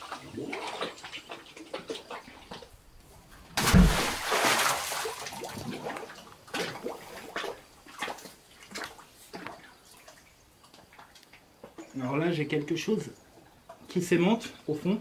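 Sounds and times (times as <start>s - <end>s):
small splashes and drips: 0.0s - 2.7s, 3.6s - 12.0s
magnet splashing into water: 3.6s - 6.9s.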